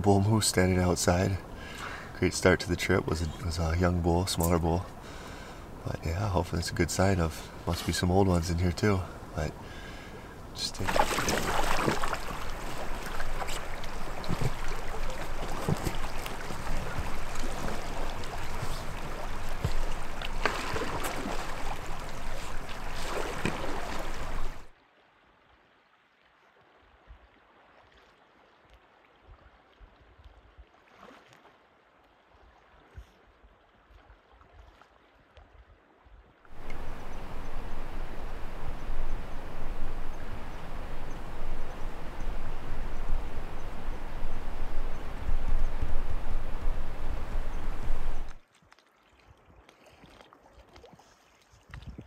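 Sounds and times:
river water rushing and splashing: 0.6s - 26.2s, 36.5s - 51.5s
paddle splashes: 9.0s - 25.7s, 26.4s - 52.0s.

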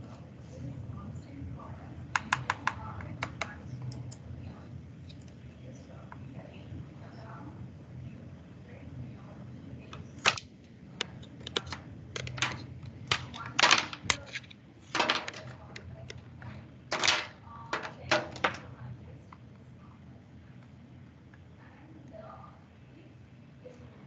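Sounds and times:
faint low hum: 0.0s - 24.0s
clicking and tapping: 11.0s - 16.2s.

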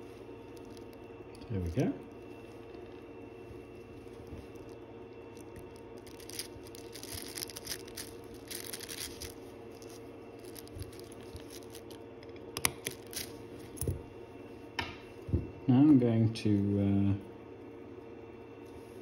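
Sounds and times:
steady hum: 0.0s - 19.0s
small metal parts scraping: 4.6s - 12.0s, 12.8s - 13.3s.

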